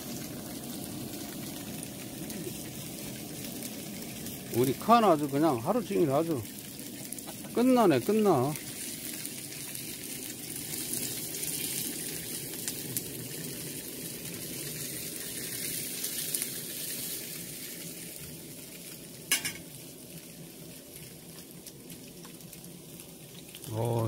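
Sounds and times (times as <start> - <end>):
pancakes sizzling in oil: 0.0 - 24.0.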